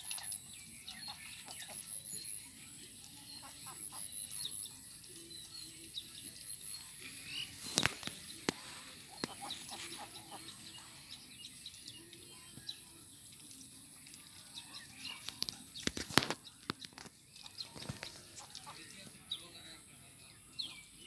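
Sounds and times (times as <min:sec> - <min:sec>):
ducks dabbling in water: 0:06.8 - 0:11.8
small wet clicks: 0:06.8 - 0:18.7.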